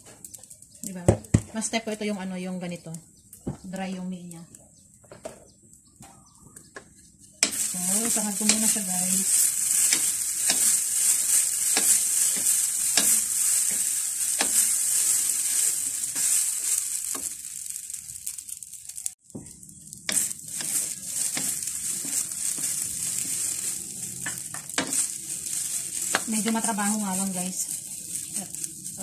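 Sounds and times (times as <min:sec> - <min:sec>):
noodles sizzling in a pan: 0:07.4 - 0:29.0
wooden spatula scraping a pan: 0:07.4 - 0:29.0.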